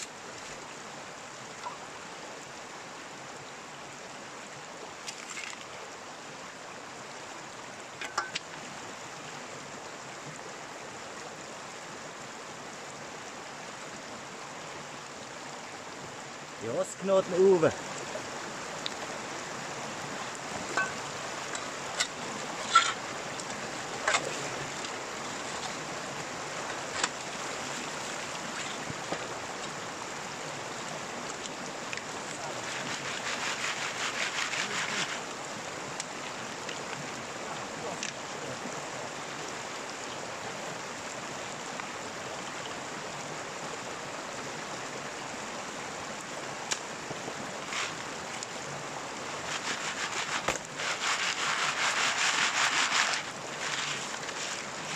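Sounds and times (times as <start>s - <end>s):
stream water running: 0.0s - 54.9s
rough rattling noise: 20.7s - 23.1s.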